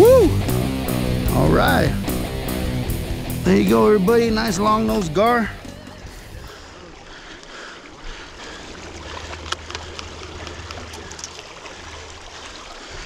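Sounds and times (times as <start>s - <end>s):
river water running: 0.0s - 13.0s.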